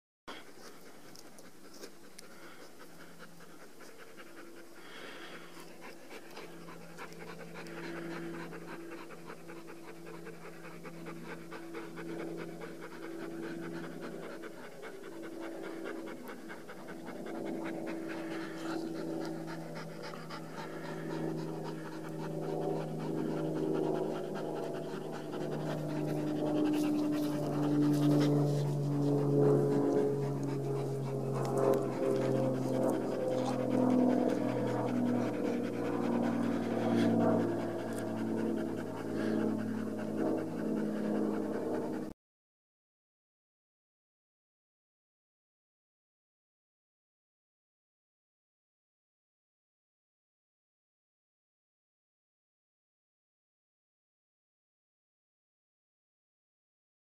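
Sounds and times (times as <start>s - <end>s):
dog panting: 0.3s - 42.1s
steady low hum: 0.3s - 42.1s.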